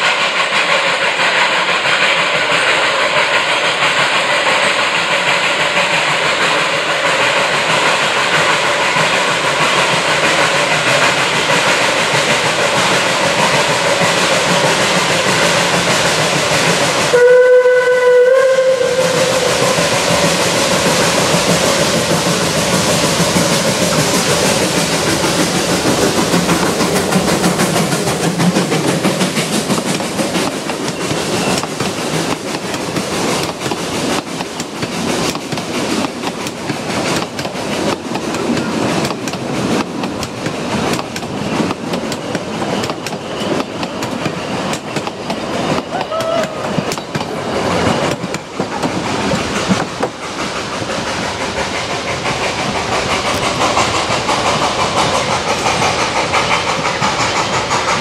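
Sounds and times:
steam locomotive exhaust hissing: 0.0s - 58.0s
train wheels clicking on rails: 0.0s - 58.0s
steam train whistle: 17.1s - 20.0s, 45.9s - 47.0s.

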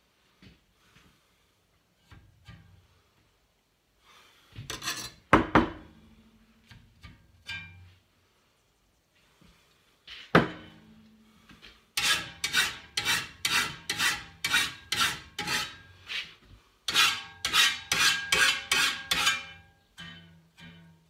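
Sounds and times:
file rasping on metal blade: 12.0s - 15.9s, 16.9s - 19.6s.

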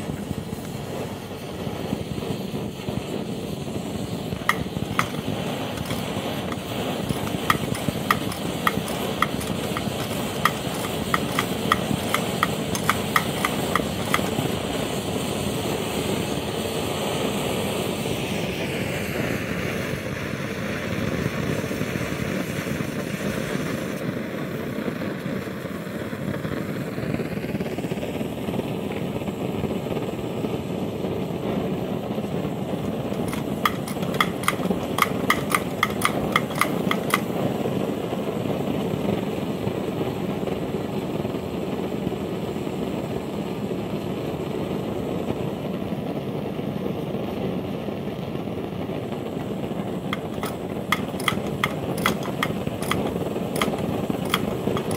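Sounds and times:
blow torch burner rushing: 0.0s - 54.9s
torch pump clicks: 3.9s - 14.6s, 33.0s - 37.4s, 49.4s - 54.9s.

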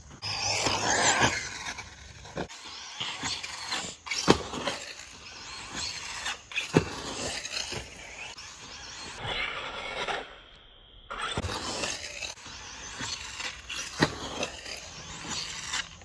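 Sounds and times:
rc car motor running: 0.2s - 10.4s, 11.1s - 16.0s
thuds of rc car landing: 6.5s - 8.1s.

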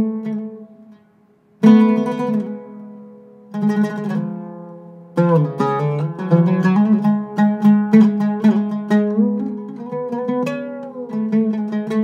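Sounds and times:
oud plucked: 0.0s - 12.0s.

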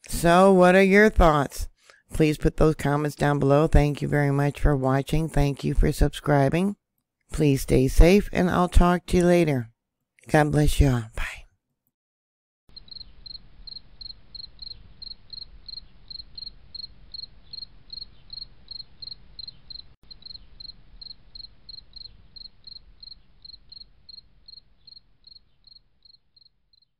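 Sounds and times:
insect chirping: 12.7s - 26.9s.

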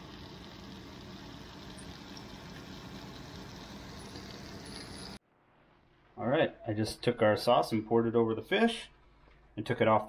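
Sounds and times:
fish fillets sizzling in a pan: 0.0s - 5.2s.

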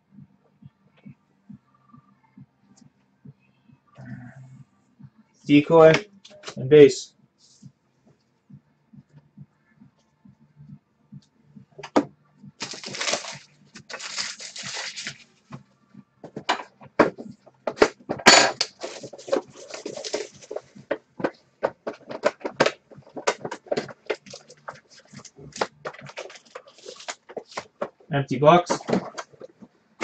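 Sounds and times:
crinkling: 12.6s - 15.3s, 18.6s - 29.8s
plastic wrap rustling: 12.6s - 15.3s, 18.7s - 20.8s, 21.9s - 28.1s.

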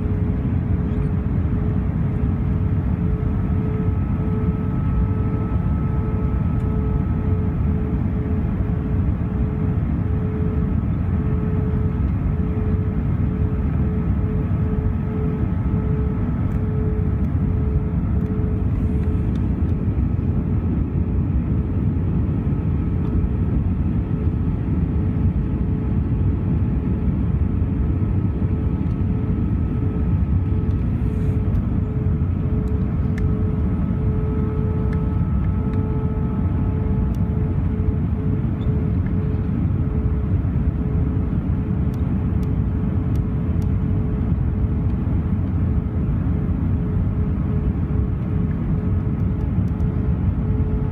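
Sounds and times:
aircraft cabin engine rumble: 0.0s - 50.9s
steady hum: 0.0s - 50.9s.

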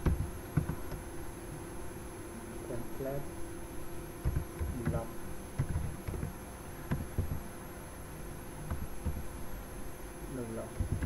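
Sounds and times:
faint electrical hum: 0.0s - 11.0s
keyboard keystrokes: 4.2s - 5.0s, 5.6s - 6.3s.

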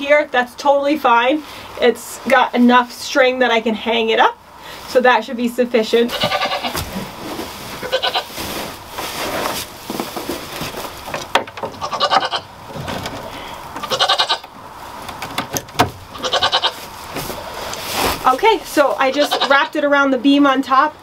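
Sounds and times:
hay rustling: 5.8s - 15.2s, 16.0s - 19.7s
goats bleating: 6.1s - 6.8s, 7.8s - 8.4s, 11.8s - 12.5s, 13.8s - 14.5s, 16.1s - 16.8s, 19.0s - 19.8s.

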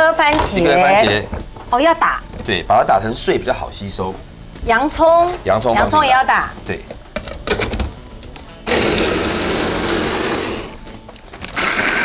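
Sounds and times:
electric chopper motor running: 8.6s - 10.8s, 11.4s - 12.0s.

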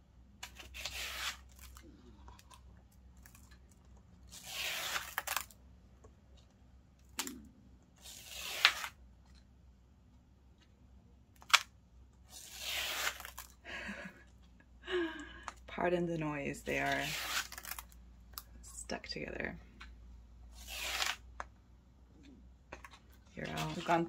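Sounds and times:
glossy pages peeled apart crackling: 0.4s - 5.6s, 8.0s - 9.4s, 11.4s - 13.6s, 16.8s - 18.5s, 20.5s - 21.5s, 22.7s - 24.0s
pages snapping free: 8.0s - 8.9s, 11.4s - 11.7s, 20.6s - 21.2s.

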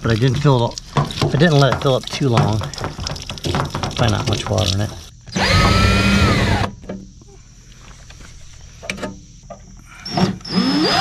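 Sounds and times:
cordless drill running: 5.3s - 6.7s, 10.1s - 11.0s.

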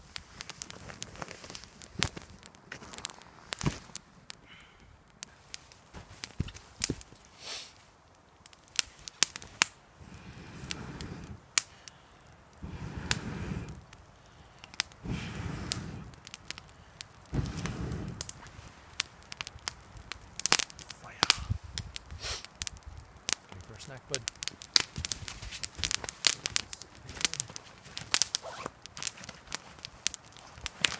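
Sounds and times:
burning wood crackling: 0.0s - 30.9s
person blowing on fire: 7.3s - 7.8s, 10.0s - 18.7s, 20.5s - 22.6s.

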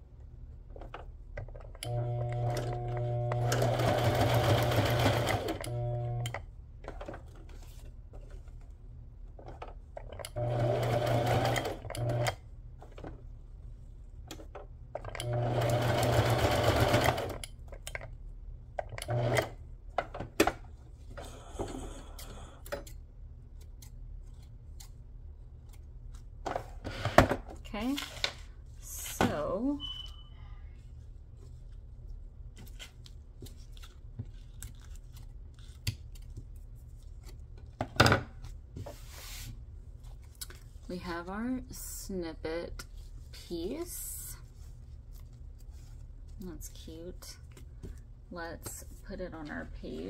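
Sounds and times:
sewing machine stitching: 1.9s - 6.4s, 10.3s - 12.4s, 15.0s - 17.4s, 19.0s - 19.6s.

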